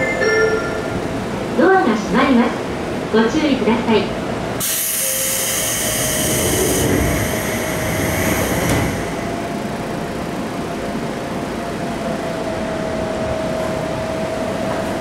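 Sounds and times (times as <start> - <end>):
train equipment hum: 0.0 - 15.0
hiss of compressed air: 4.6 - 9.0.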